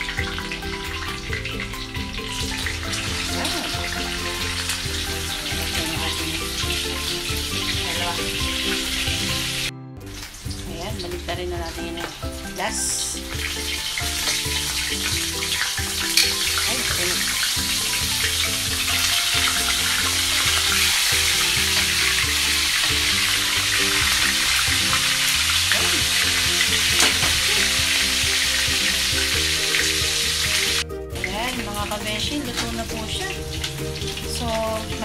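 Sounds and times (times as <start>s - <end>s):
fish deep-frying in oil: 0.0s - 35.0s
soft background music: 0.0s - 35.0s.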